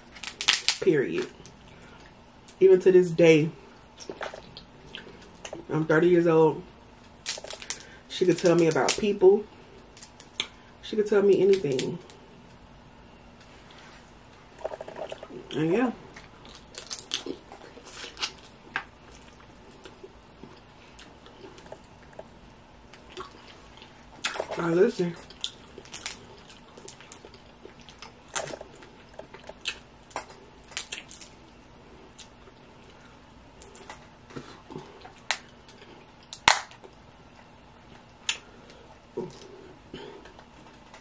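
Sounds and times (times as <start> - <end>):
crab shell cracking: 0.1 - 0.8, 16.5 - 18.9, 36.3 - 36.9
wet mouth eating sounds: 14.6 - 15.5.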